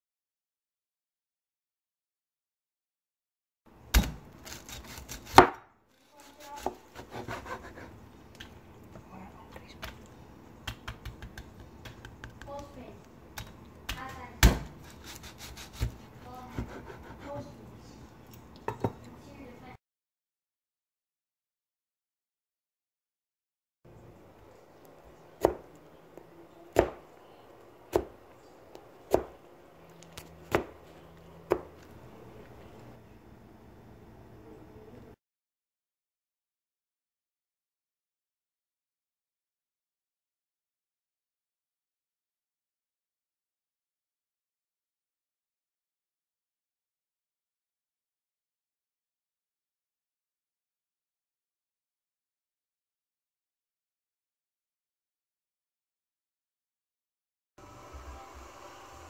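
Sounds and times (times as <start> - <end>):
knife crunching through crackling: 4.0 - 7.9, 14.8 - 17.0.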